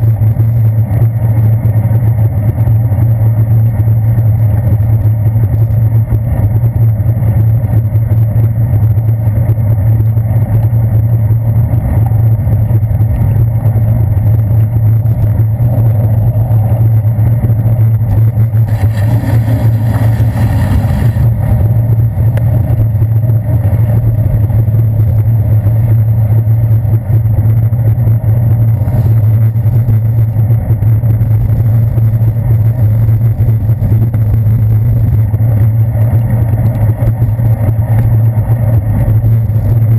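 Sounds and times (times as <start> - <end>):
traffic noise: 11.5 - 39.9
bicycle rolling on wet pavement: 14.4 - 24.0.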